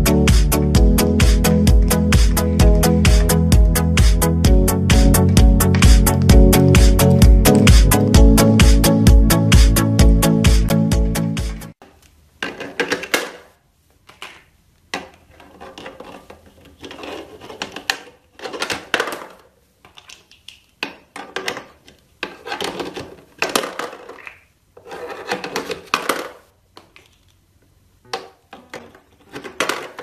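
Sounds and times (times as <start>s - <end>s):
plastic blocks clattering: 12.4s - 27.4s, 28.1s - 30.0s.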